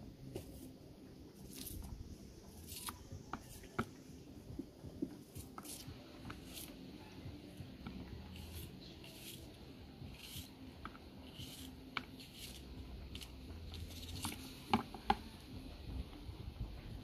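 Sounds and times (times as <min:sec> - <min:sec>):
knife slicing onion: 0:02.5 - 0:03.9, 0:05.2 - 0:06.9, 0:07.8 - 0:14.4.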